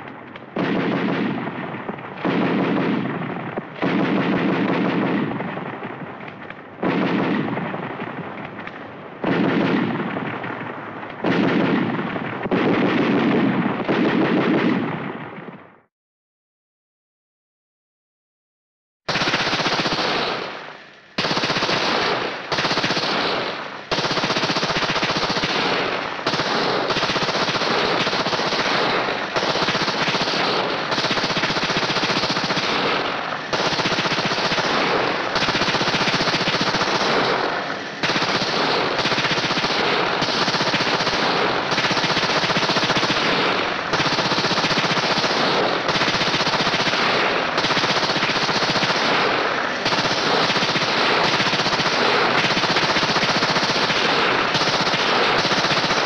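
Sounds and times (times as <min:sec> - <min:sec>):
machine gun automatic fire: 0:00.0 - 0:15.6, 0:19.1 - 0:56.0.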